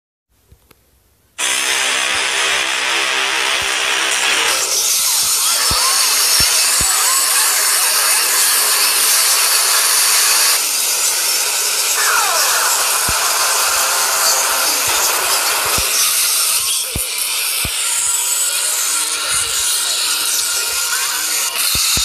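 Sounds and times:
harsh distorted layered soundtracks: 1.4s - 22.0s.

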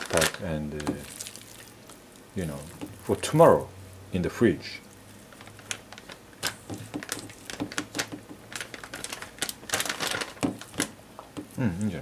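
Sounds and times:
plastic bag crinkling: 0.0s - 1.9s, 5.1s - 11.0s.

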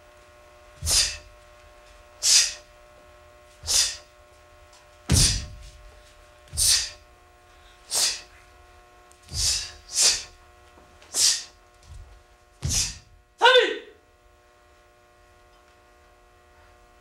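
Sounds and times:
faint steady hum: 0.0s - 17.0s
hissing exhalations: 0.8s - 1.3s, 2.2s - 2.7s, 3.6s - 4.1s, 6.6s - 7.0s, 7.9s - 8.3s, 9.3s - 10.4s, 11.1s - 11.6s, 12.7s - 13.1s
foot thudding on floor: 5.0s - 6.9s, 9.2s - 9.8s, 11.8s - 13.2s.

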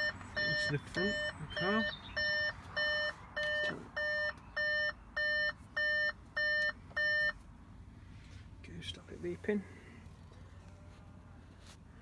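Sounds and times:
car warning chime beeping: 0.0s - 7.4s.

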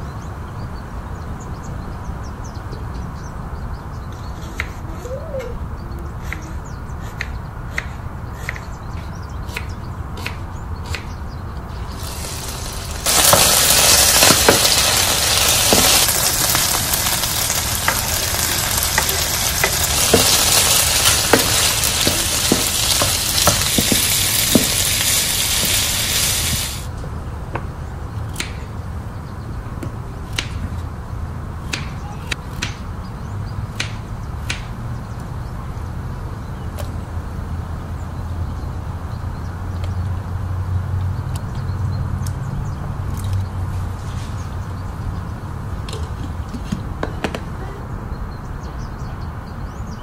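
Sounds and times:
meat sizzling in a frying pan: 11.7s - 26.9s
wooden spatula knocking: 12.1s - 25.8s.

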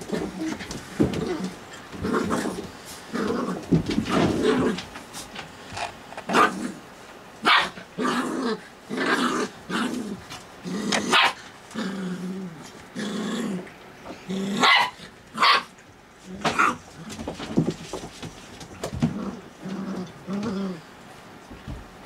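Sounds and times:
puppies growling: 0.0s - 7.0s, 7.6s - 21.0s
puppies yappy barking: 7.4s - 7.8s, 11.1s - 11.4s, 14.6s - 15.8s.

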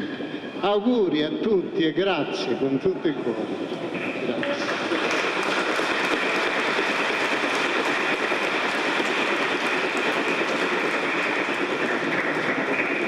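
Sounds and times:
congregation applauding: 3.9s - 13.0s.

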